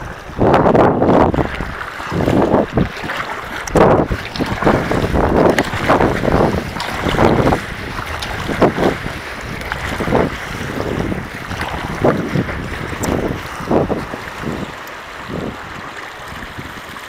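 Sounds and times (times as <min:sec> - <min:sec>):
water splashing along hull: 0:00.0 - 0:17.0
wind buffeting microphone: 0:00.0 - 0:17.0.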